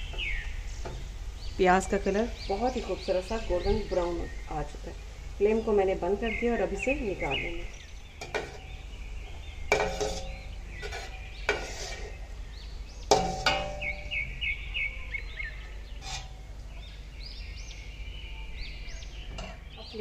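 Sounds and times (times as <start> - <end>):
birds chirping: 0.0 - 20.0
metal spoon clanking against pot: 8.2 - 8.7, 9.7 - 11.7, 13.1 - 14.1, 16.0 - 16.4.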